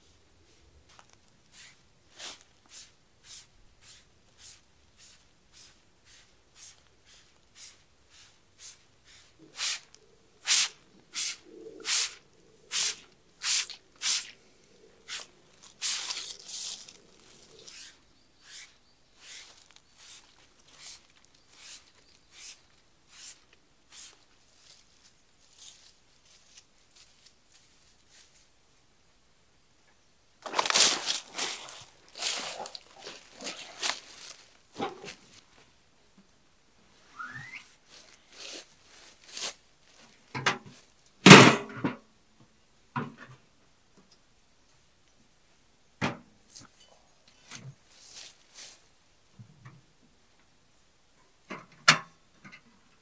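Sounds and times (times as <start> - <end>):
spray bottle hisses: 9.5 - 14.3, 17.7 - 20.2, 21.6 - 24.2.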